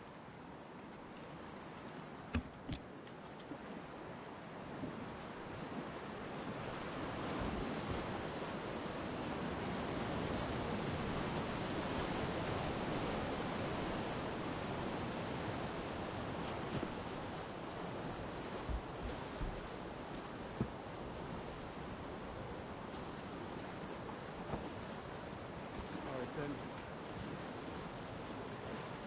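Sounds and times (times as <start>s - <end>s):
brief knocks: 2.3s - 2.8s.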